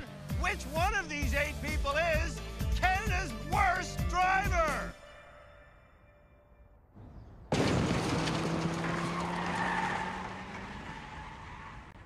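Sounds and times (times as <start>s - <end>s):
car engine running: 7.8s - 11.8s
car tyres squealing: 8.0s - 12.0s.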